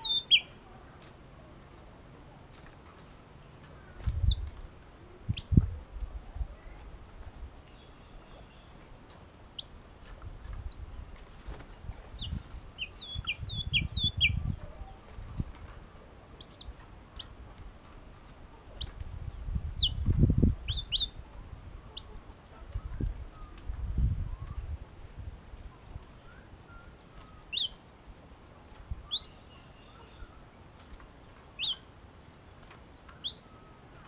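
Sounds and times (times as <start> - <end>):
bird chirping: 0.0 - 0.8, 3.0 - 5.6, 7.6 - 9.8, 10.5 - 11.2, 11.8 - 15.0, 16.4 - 17.4, 18.0 - 24.8, 25.8 - 30.5, 31.4 - 34.0
wings fluttering in cage: 1.0 - 5.7, 10.0 - 20.5, 30.7 - 34.0.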